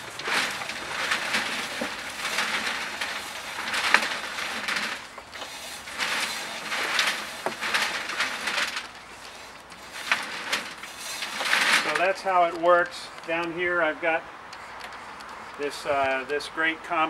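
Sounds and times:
compost tumbling in rotating drum: 0:00.0 - 0:13.4.

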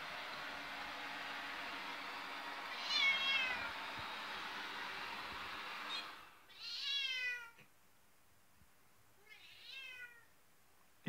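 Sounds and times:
robot vacuum whirring: 0:00.0 - 0:06.4
cat meowing: 0:02.8 - 0:03.7, 0:05.9 - 0:07.6, 0:09.2 - 0:10.3.

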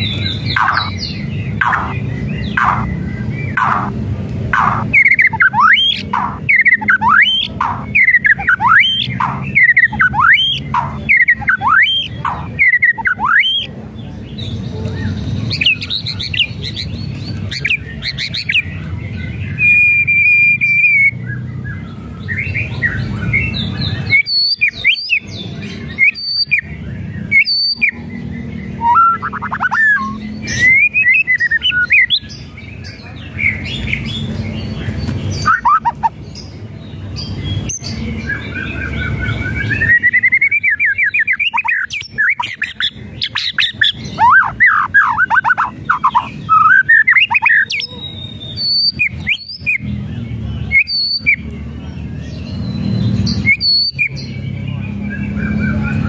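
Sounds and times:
bird singing whistled phrases: 0:00.0 - 0:03.9, 0:04.6 - 0:13.7, 0:19.5 - 0:32.3, 0:35.4 - 0:36.1, 0:37.6 - 0:49.9, 0:50.7 - 0:51.5, 0:52.4 - 0:54.4
bird sharp clicking notes: 0:00.4 - 0:13.7.

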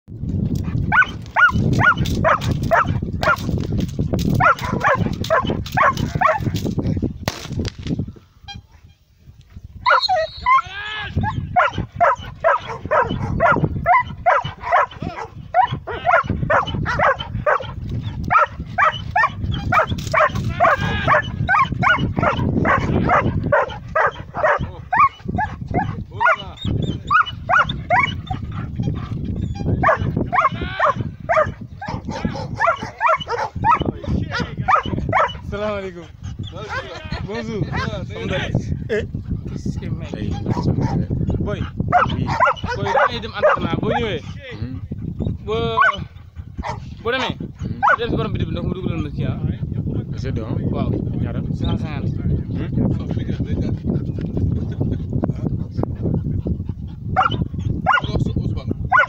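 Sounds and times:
dog barking aggressively: 0:00.9 - 0:03.6, 0:04.3 - 0:06.6, 0:11.2 - 0:35.5, 0:36.6 - 0:37.0, 0:40.3 - 0:44.1, 0:45.8 - 0:46.0, 0:46.6 - 0:46.9, 0:47.8 - 0:48.1, 0:57.2 - 0:58.1.

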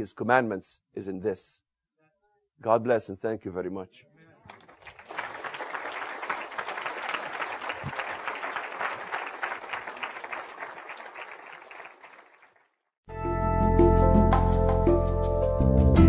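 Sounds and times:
audience applauding: 0:04.4 - 0:12.8.

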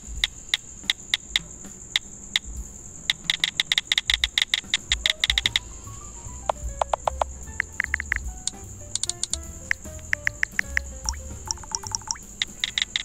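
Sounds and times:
phone keyboard click ticks: 0:03.1 - 0:05.6, 0:07.8 - 0:08.2, 0:09.0 - 0:09.4, 0:10.1 - 0:13.0.

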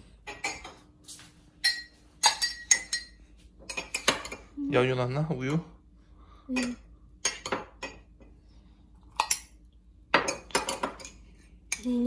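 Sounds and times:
cutlery clinking against dishes: 0:00.3 - 0:00.8, 0:01.6 - 0:04.5, 0:06.6 - 0:08.1, 0:09.1 - 0:11.9.

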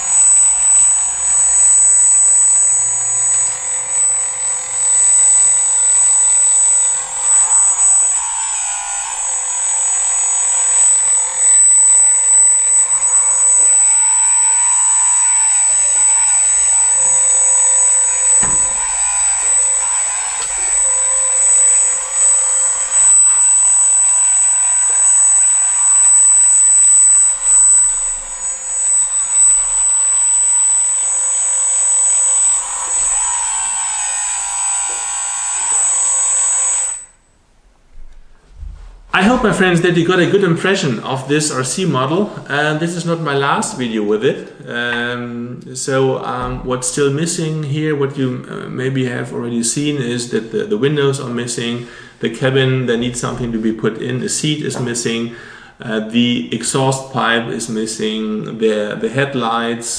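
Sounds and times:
hydraulic pump and motors whining: 0:00.0 - 0:37.2
single thump: 0:37.9 - 0:39.5.

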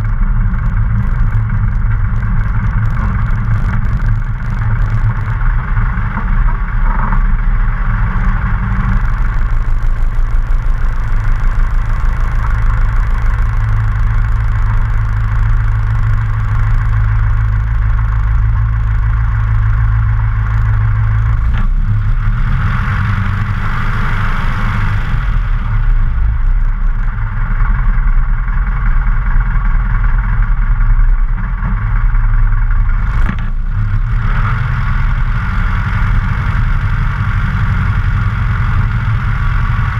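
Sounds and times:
light aircraft engine idling: 0:00.0 - 0:22.4, 0:24.4 - 0:39.9.

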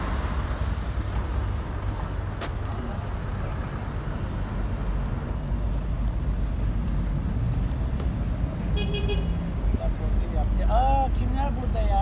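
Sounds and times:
low rumble of traffic: 0:00.0 - 0:12.0.

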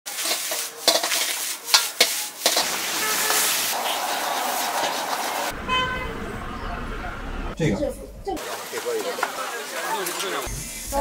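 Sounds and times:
metal ladle clanging in a wok: 0:00.1 - 0:03.5
greens sizzling in a wok: 0:00.1 - 0:05.5.

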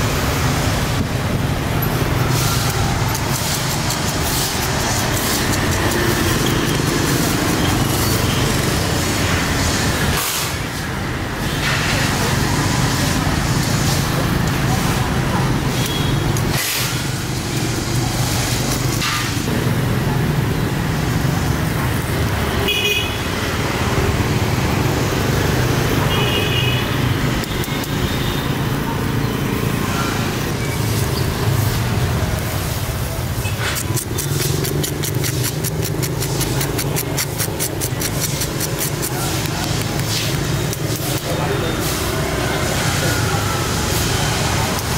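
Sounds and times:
street traffic: 0:00.0 - 0:44.9
scratchy strokes: 0:02.4 - 0:08.2, 0:33.4 - 0:42.1
vehicle horn toots: 0:22.6 - 0:23.2.

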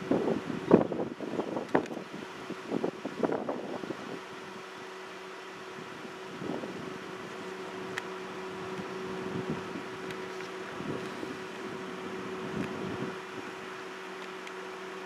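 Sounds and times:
wind on microphone: 0:00.0 - 0:04.6, 0:05.6 - 0:07.5, 0:08.6 - 0:13.7
low hum: 0:00.8 - 0:15.0.

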